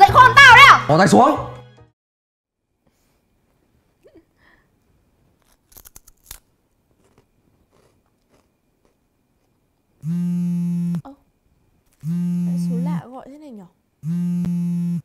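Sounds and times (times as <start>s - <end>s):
plastic wrapper crinkling: 5.4s - 7.2s
phone buzzing tone: 10.0s - 11.1s, 12.0s - 13.0s, 14.0s - 15.0s.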